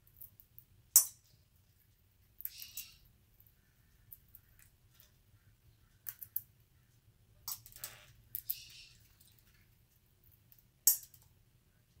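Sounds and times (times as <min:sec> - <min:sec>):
parakeet cracking seeds: 0:02.4 - 0:05.2, 0:06.0 - 0:06.5, 0:07.5 - 0:11.3.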